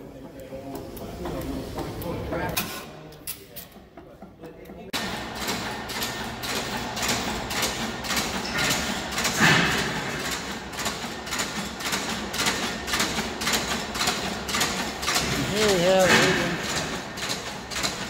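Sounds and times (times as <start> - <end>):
stationary engines clattering: 3.6 - 18.0.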